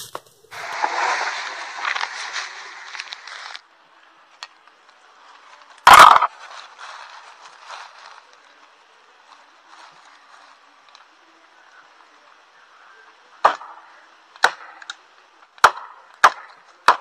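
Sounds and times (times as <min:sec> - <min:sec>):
footsteps crunching through dry leaves: 0:00.0 - 0:03.7, 0:04.8 - 0:10.9
faint rustling and crackling: 0:00.0 - 0:13.2.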